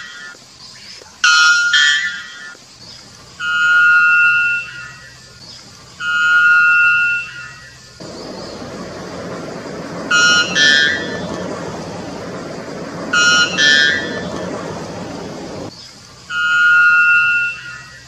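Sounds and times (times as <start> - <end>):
low rushing noise: 8.0 - 15.7.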